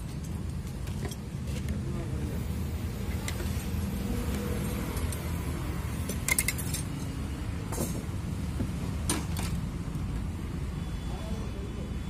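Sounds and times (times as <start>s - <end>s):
small steel parts clinking: 6.1s - 7.1s.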